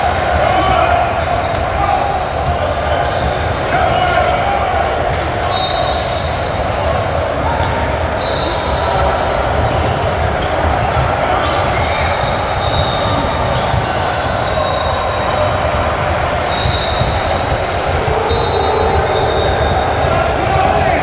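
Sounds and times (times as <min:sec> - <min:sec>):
many voices echoing in a gym: 0:00.0 - 0:21.0
sneakers squeaking on hardwood: 0:08.2 - 0:21.0.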